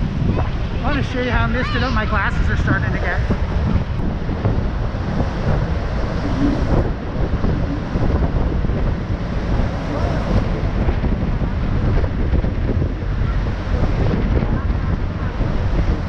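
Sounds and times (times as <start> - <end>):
churning river: 0.0 - 16.0
wind buffeting microphone: 0.0 - 16.0.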